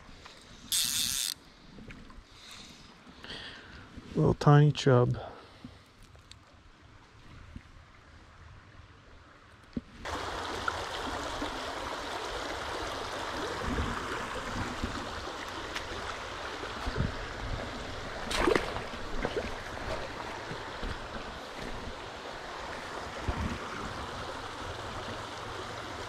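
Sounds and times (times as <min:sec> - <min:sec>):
stream running over rocks: 0:10.0 - 0:26.0.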